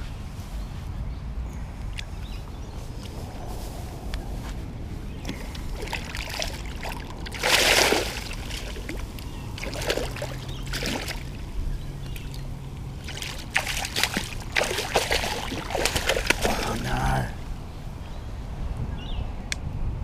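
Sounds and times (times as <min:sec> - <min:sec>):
fish splashing in water: 0:05.2 - 0:17.4.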